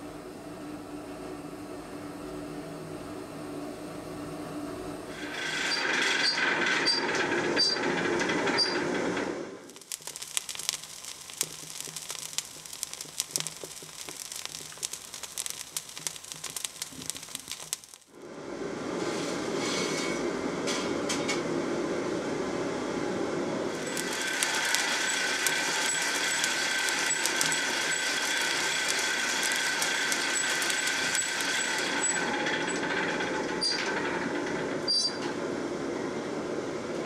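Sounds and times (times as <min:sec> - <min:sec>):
forge fire crackling: 0:09.6 - 0:18.3, 0:23.7 - 0:34.4
hiss and hum: 0:09.8 - 0:18.9
shovel scraping through coal: 0:23.8 - 0:32.3.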